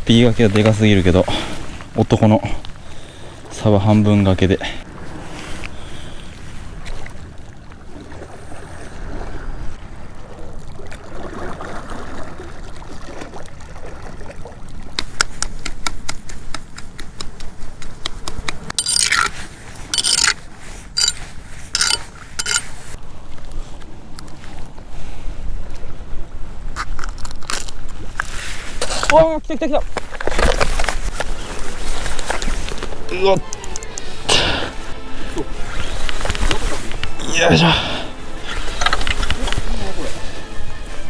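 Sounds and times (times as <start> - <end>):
ladle scraping wet bait: 18.7 - 23.0.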